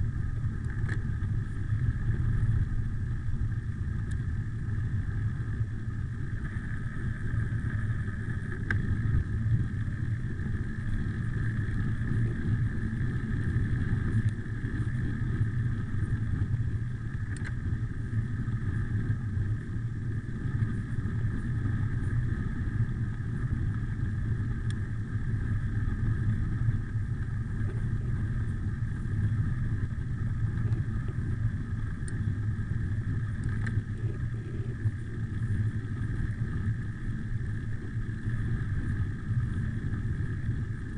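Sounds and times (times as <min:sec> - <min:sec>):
bike tyres rolling on asphalt: 0:00.0 - 0:40.9
wind buffeting microphone: 0:00.0 - 0:40.9.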